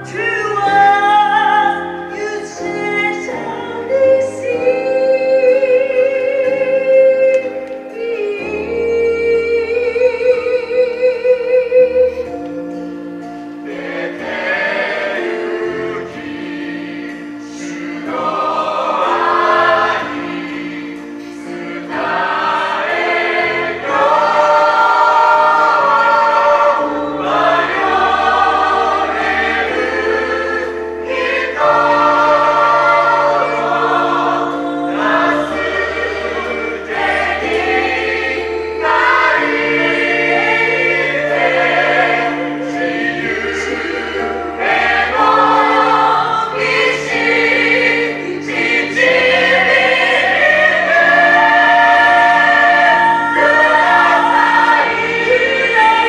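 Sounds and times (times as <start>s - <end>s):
gospel choir singing: 0.0s - 56.0s.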